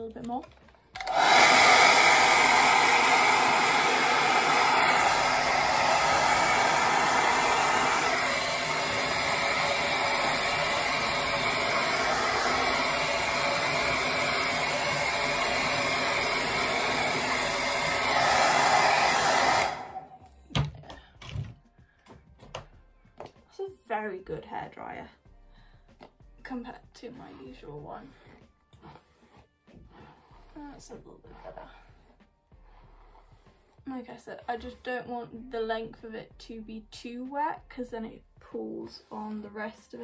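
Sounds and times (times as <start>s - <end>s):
hair dryer blowing: 1.0s - 20.3s.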